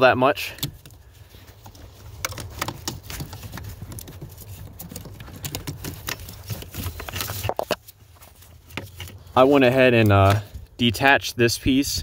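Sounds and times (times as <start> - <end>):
clicks and rustles of plastic trim: 0.4 - 9.4.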